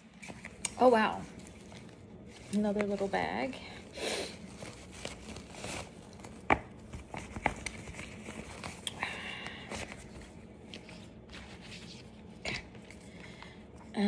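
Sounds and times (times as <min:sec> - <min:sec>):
satin fabric rustling: 0:00.0 - 0:08.8.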